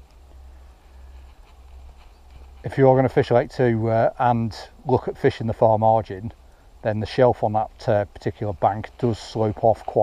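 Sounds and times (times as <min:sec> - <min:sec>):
faint ticks: 0:00.0 - 0:02.7.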